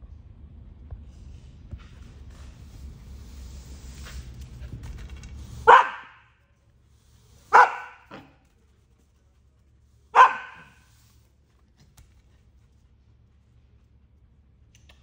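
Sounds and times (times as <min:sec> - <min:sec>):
puppy barking: 0:05.6 - 0:06.3, 0:07.5 - 0:08.4, 0:10.1 - 0:10.9
puppy yip: 0:05.7 - 0:06.2, 0:10.2 - 0:10.8.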